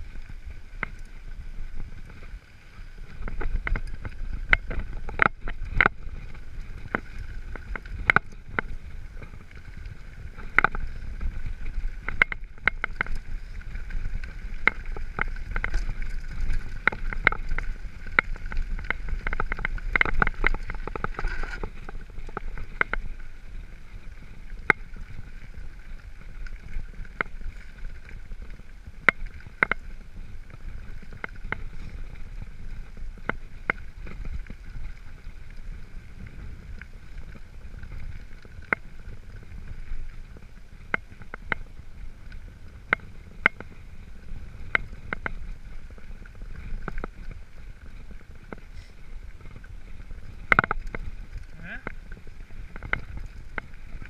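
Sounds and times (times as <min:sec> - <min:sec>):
bike clicking and rattling: 0:00.0 - 0:54.0
wind on microphone: 0:00.0 - 0:54.0.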